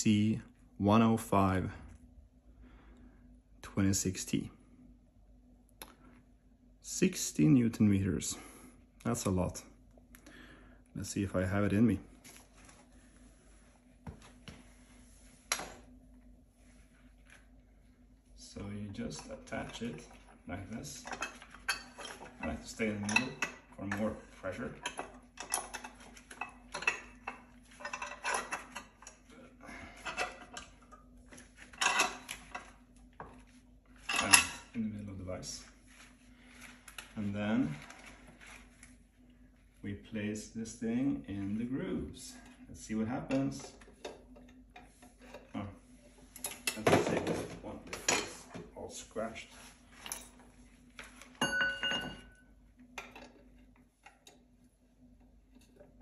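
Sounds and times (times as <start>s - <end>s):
metal parts clinking and scraping: 20.9s - 29.2s
metallic clink ringing: 51.4s - 52.4s.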